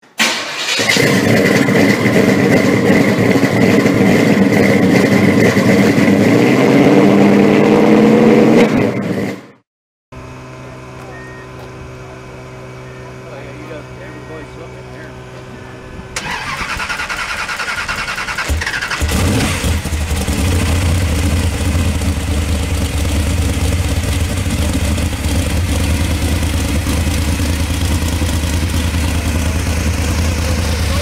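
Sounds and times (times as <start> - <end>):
engine cranking on starter: 0.2 - 3.2, 16.2 - 20.0
engine idling loudly: 0.9 - 6.1, 10.2 - 31.0.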